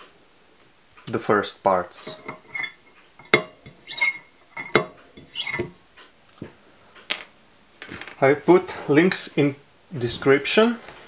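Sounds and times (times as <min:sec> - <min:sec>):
metal bearing clinking on spindle: 0:02.0 - 0:05.8.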